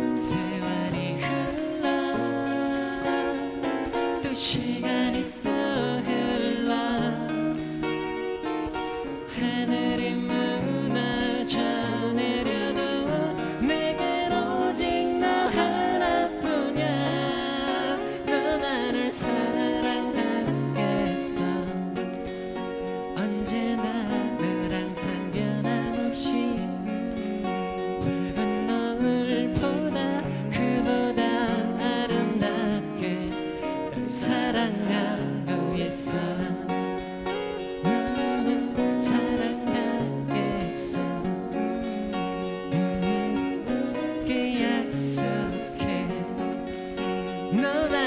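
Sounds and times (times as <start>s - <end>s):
men singing: 0.0s - 7.7s, 9.3s - 22.0s, 23.2s - 37.0s, 37.8s - 46.7s, 47.4s - 48.0s
acoustic guitars playing: 0.0s - 48.0s.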